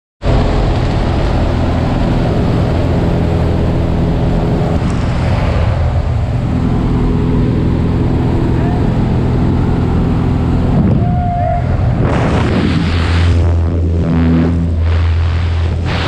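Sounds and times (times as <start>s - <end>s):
propeller plane engine droning: 0.2s - 16.0s
wind rushing: 9.2s - 16.0s.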